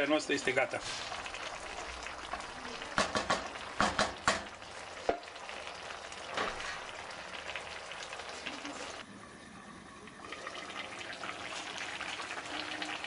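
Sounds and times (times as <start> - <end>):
sizzling and bubbling pot: 0.0 - 13.0
wooden spoon knocking on pot: 3.0 - 5.3.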